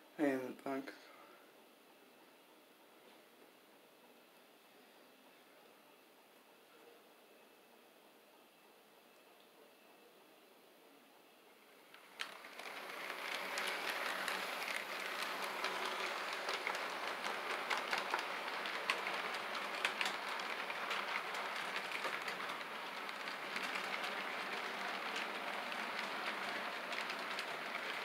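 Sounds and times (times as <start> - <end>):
model train wheels rattling: 11.9 - 28.0.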